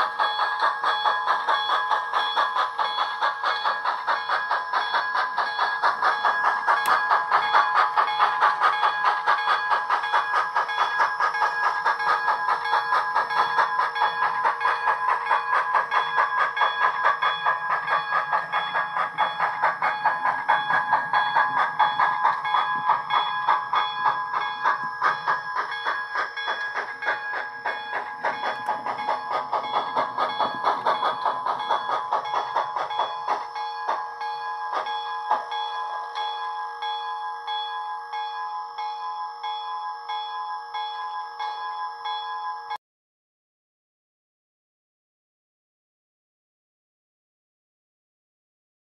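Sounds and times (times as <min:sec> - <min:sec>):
model steam exhaust chuffs: 0:00.0 - 0:37.8.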